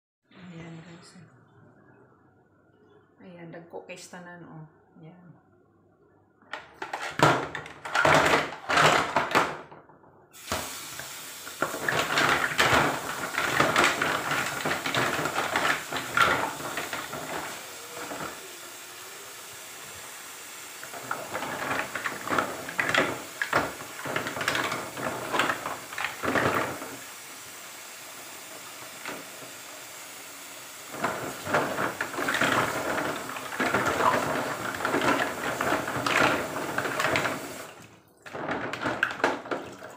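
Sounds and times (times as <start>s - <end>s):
mussels clattering into basin: 6.6s - 9.7s, 11.5s - 18.4s, 20.8s - 27.0s, 30.9s - 39.9s
tap running into basin: 10.4s - 18.5s, 20.8s - 27.1s, 28.5s - 29.7s, 30.8s - 39.9s.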